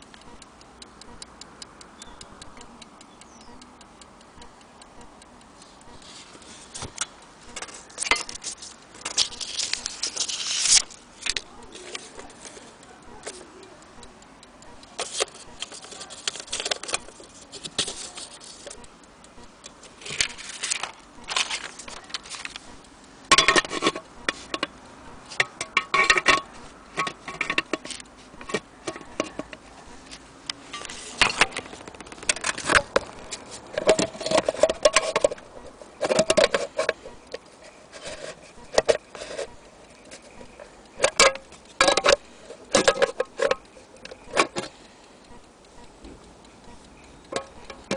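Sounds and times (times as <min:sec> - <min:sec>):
metal clicks knocks and clinks: 0:47.2 - 0:47.9.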